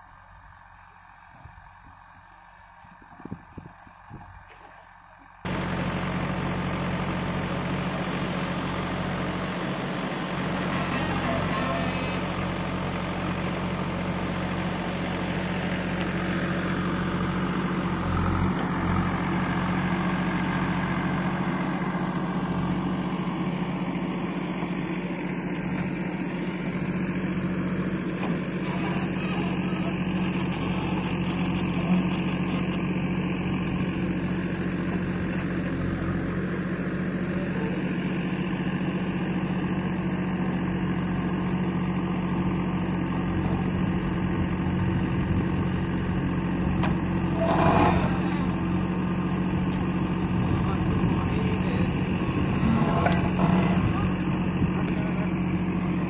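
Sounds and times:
diesel engine running: 0:00.0 - 0:56.0
backhoe arm digging soil: 0:28.1 - 0:33.2, 0:46.8 - 0:49.4, 0:52.2 - 0:55.5.

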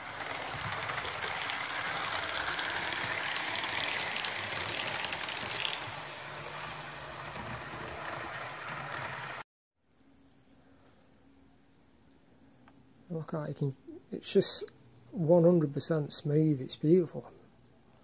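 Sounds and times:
model train rolling on track: 0:00.0 - 0:09.4
wheels clicking on rails: 0:00.0 - 0:09.4.

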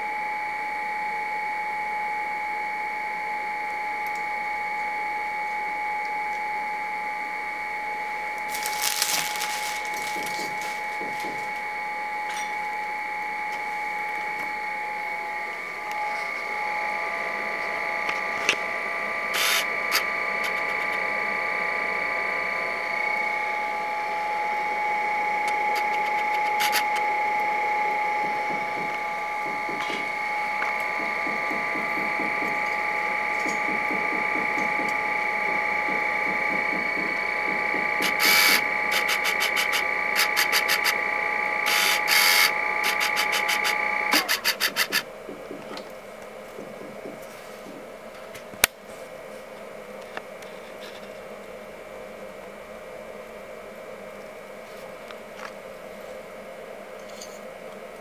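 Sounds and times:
small machine whining: 0:00.0 - 0:58.0
sharp clicks: 0:35.9 - 0:41.0, 0:41.7 - 0:46.0.

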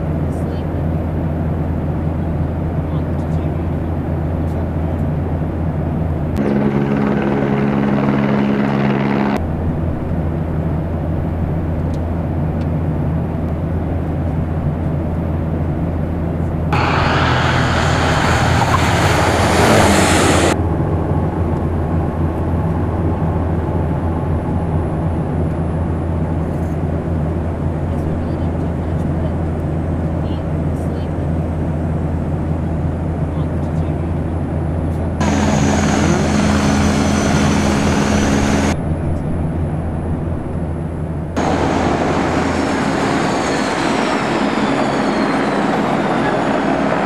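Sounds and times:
steady humming tone: 0:00.0 - 0:47.0
turboprop engine drone: 0:00.0 - 0:47.0
loud rushing surge: 0:16.8 - 0:20.6, 0:35.2 - 0:38.8, 0:41.4 - 0:47.0.

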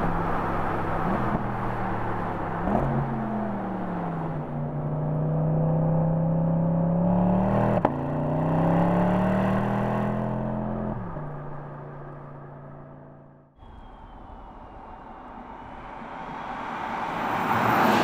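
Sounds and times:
road noise: 0:00.0 - 0:18.0
faint high whine: 0:13.6 - 0:17.2.

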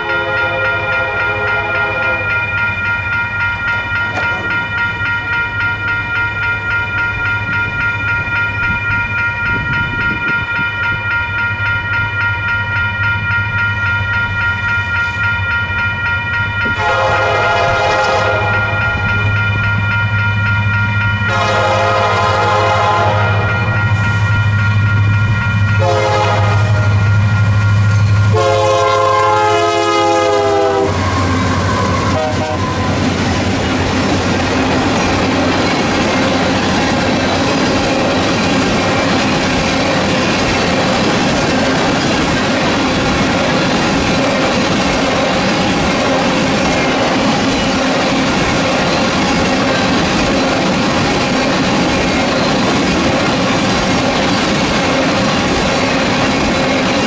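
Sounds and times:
train horn blasts: 0:00.0 - 0:02.3, 0:16.7 - 0:19.0, 0:21.2 - 0:24.2, 0:25.8 - 0:27.4, 0:28.2 - 0:33.1
crossing bell ringing: 0:00.0 - 0:57.0
diesel locomotive rumble: 0:16.0 - 0:57.0.

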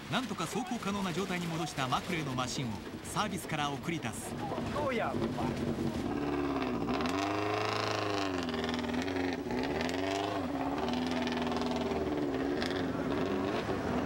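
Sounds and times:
rally car engine revving: 0:04.3 - 0:14.0.

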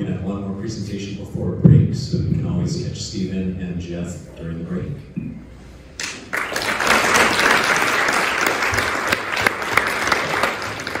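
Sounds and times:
audience applauding: 0:06.0 - 0:11.0.

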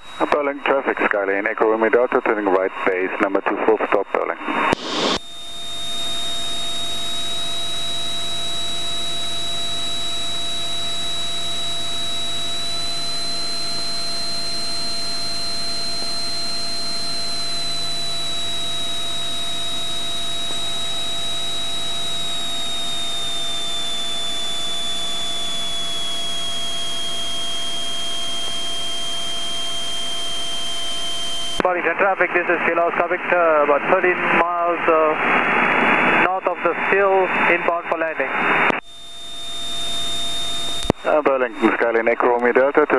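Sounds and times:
thin high whine: 0:00.0 - 0:42.9.

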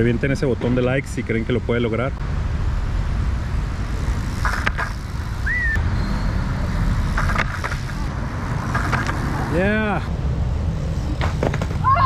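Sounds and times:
city traffic rumble: 0:00.0 - 0:12.0
bike tyres rolling on paving: 0:03.5 - 0:05.8, 0:06.4 - 0:12.0.

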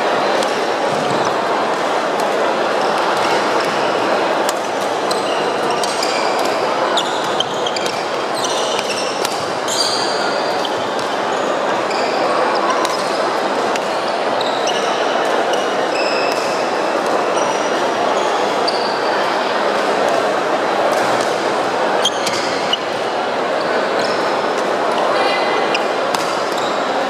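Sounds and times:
sports hall din: 0:00.0 - 0:27.0
racket hitting shuttlecock: 0:08.8 - 0:09.6.

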